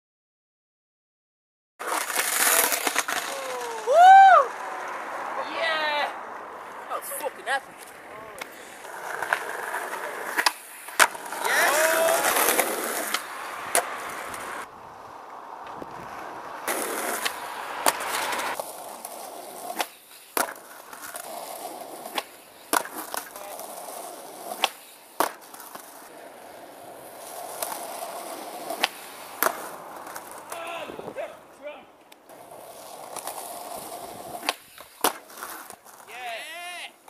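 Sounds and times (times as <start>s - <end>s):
skateboard tail clacks: 1.8s - 3.9s, 7.7s - 14.7s, 15.6s - 31.2s, 32.0s - 36.6s
skateboard wheels rolling on asphalt: 1.8s - 37.0s.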